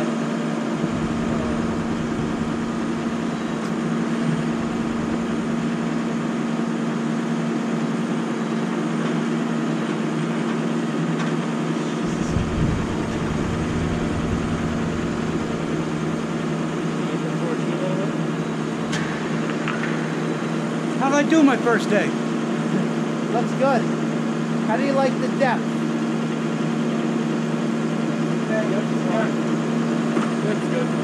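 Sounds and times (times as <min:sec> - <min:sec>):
truck engine running steadily: 0:00.8 - 0:08.4, 0:11.8 - 0:21.0.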